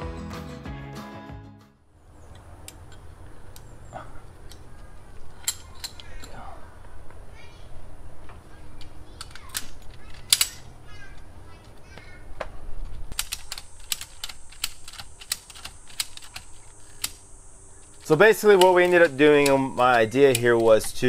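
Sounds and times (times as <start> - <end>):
ratchet strap clicking: 5.3 - 6.4, 8.8 - 10.7, 13.1 - 21.0.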